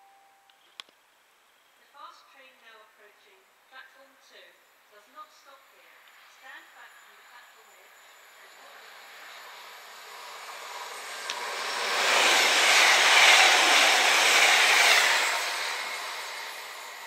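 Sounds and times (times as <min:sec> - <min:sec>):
train passing: 0:06.2 - 0:17.0.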